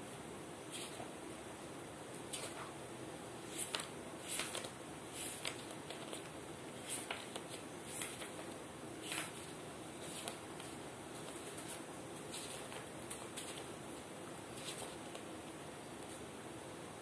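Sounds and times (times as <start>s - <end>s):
steady low hiss: 0.0s - 17.0s
book pages rustling: 2.3s - 2.7s, 3.4s - 16.3s.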